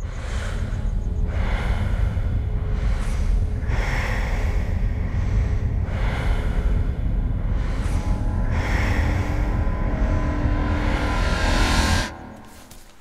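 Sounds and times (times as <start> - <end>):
steady low rumble: 0.0 - 12.9
heavy slow breathing: 0.0 - 13.0.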